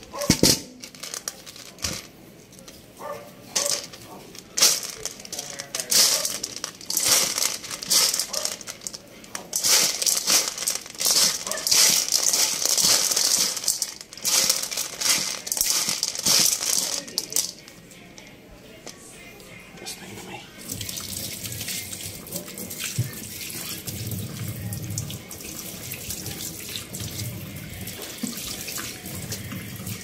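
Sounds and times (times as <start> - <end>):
kibble rattling in metal bowl: 0.0 - 2.7, 3.5 - 17.8.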